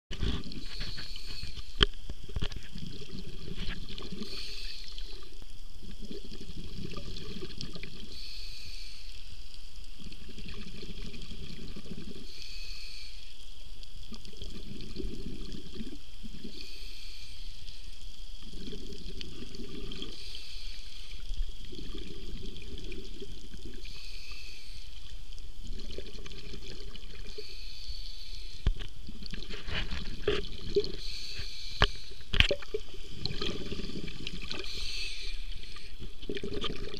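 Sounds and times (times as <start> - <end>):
regulator hiss on inhale: 0.2 - 36.9
exhaled bubbles rushing: 2.3 - 5.2, 5.8 - 8.1, 10.0 - 12.3, 14.1 - 16.6, 18.4 - 20.2, 21.0 - 23.9, 25.6 - 27.4, 29.0 - 31.0, 32.2 - 36.9.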